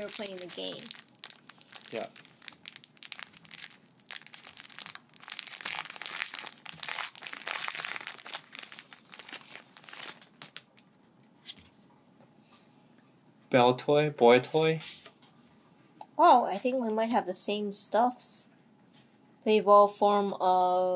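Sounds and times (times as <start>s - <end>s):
foil wrapper tearing and crinkling: 0.0s - 10.9s.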